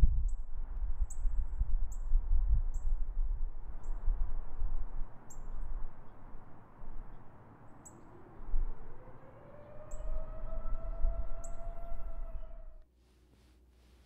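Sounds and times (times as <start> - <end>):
steady low rumble: 0.0 - 12.8
small bird chirping: 0.2 - 3.1, 3.8 - 4.1, 5.0 - 12.8.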